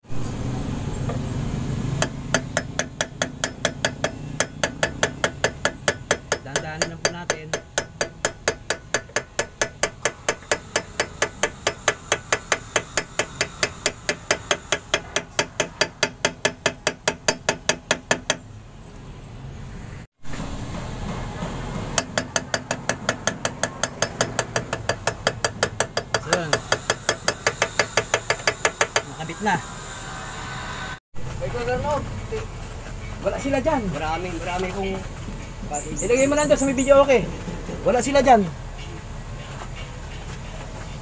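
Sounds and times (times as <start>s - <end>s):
hammer striking metal: 2.0s - 18.4s, 20.3s - 29.2s.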